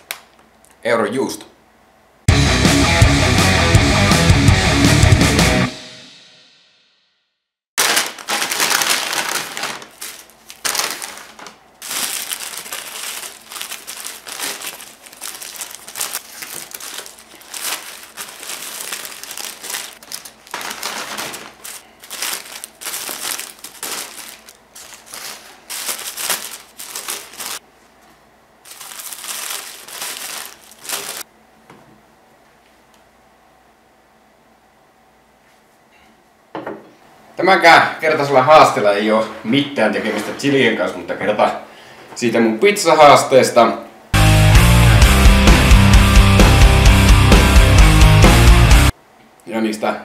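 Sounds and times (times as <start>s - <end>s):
paper wrappers rustling: 7.8s - 27.6s, 28.6s - 31.3s.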